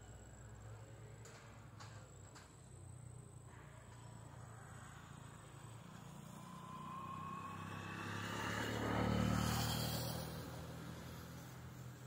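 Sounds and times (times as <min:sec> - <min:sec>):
vehicle engine passing by: 0:04.5 - 0:12.0.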